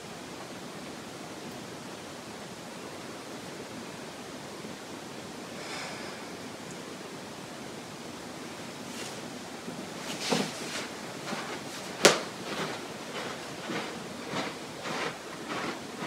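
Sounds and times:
steady background hiss: 0.0s - 16.0s
rustling on yoga mat: 8.8s - 16.0s
soft footsteps on carpet: 10.0s - 16.0s.

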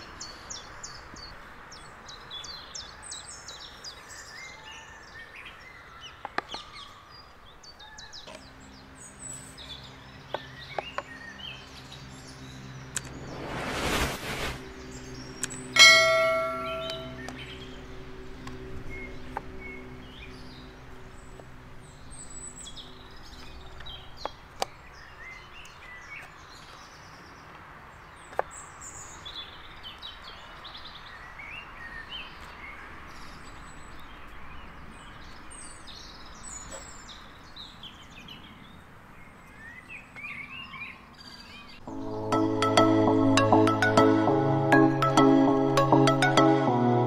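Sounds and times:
birds chirping: 14.5s - 27.5s.

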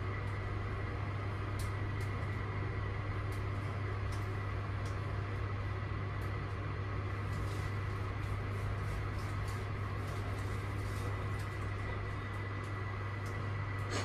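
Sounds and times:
lift hum and whine: 0.0s - 14.0s.

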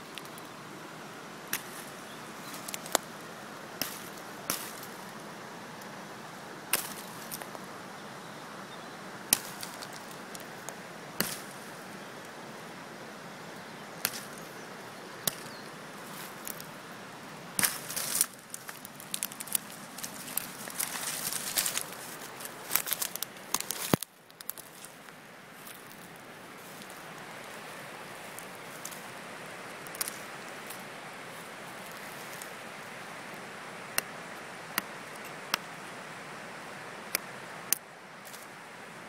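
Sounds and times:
steady hiss: 0.0s - 39.0s
knife cutting branch cracking: 6.7s - 7.5s, 11.2s - 11.6s, 14.0s - 14.4s, 17.6s - 21.9s.

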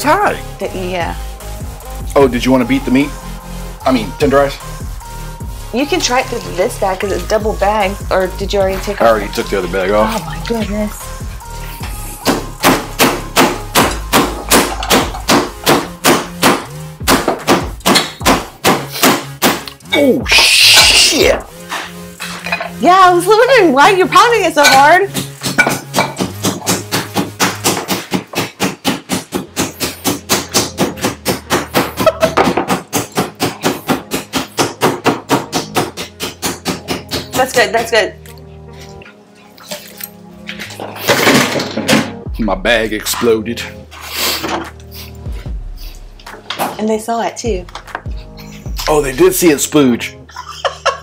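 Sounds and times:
meat mallet pounding: 12.2s - 19.8s, 24.6s - 37.5s.

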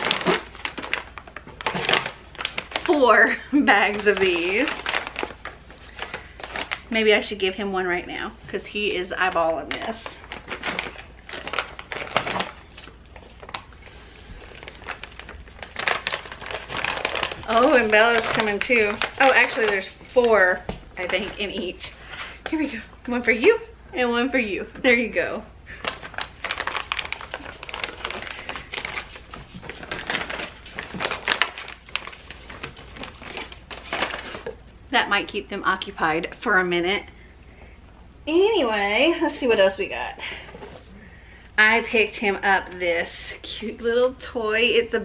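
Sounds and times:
plastic pouch crinkling: 0.0s - 7.6s, 9.1s - 23.1s, 25.7s - 34.7s
dogs crunching chews: 9.7s - 21.6s, 25.7s - 34.6s.

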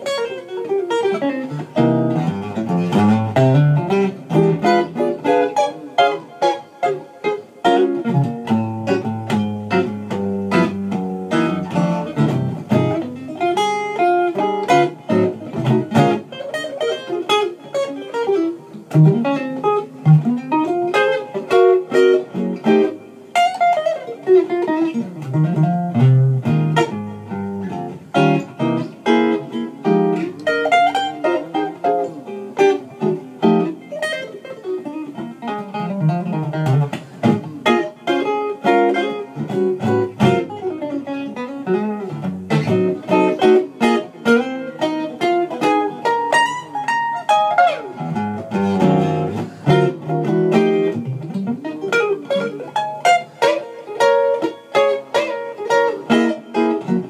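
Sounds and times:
solo guitar playing: 0.0s - 57.0s.

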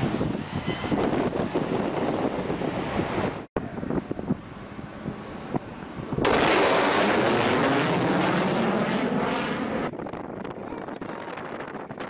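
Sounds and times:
jet aircraft roaring overhead: 4.4s - 10.6s.

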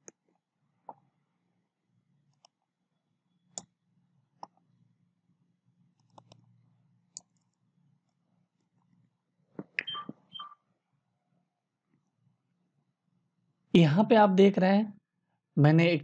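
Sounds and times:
mouse and keyboard clicks: 6.0s - 6.4s.

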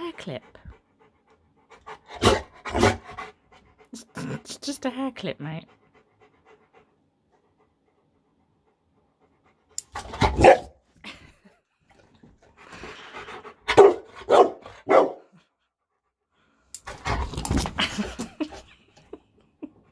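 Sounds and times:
puppy barking: 10.2s - 10.8s, 13.7s - 15.3s.

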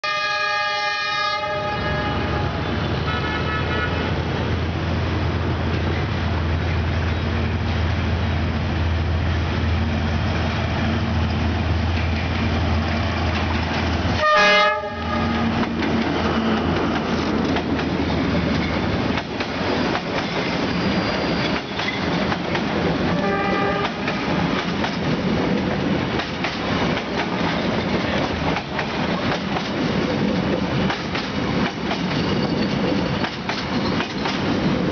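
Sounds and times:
locomotive horn blasts: 0.0s - 4.2s, 14.2s - 15.6s, 23.2s - 24.0s
train wheels clacking over rail joints: 15.5s - 22.9s, 23.5s - 34.9s.

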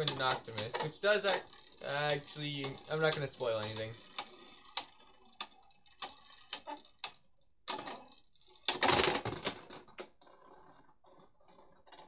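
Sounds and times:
rattling clatter: 0.0s - 7.1s.

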